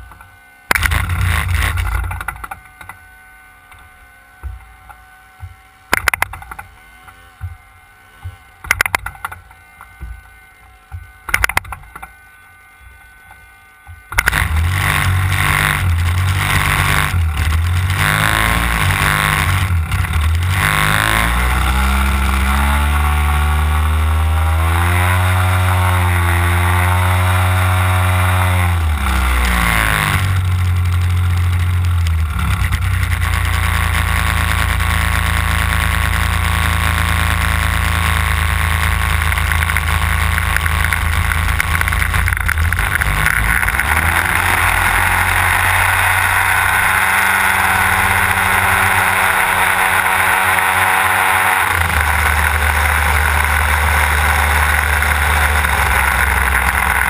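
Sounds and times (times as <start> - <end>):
model plane engine running: 14.1 - 57.0.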